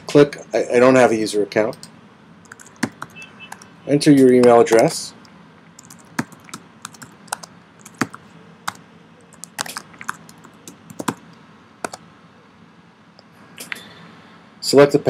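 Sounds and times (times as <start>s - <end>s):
typing on computer keyboard: 1.8s - 3.7s, 5.8s - 11.2s.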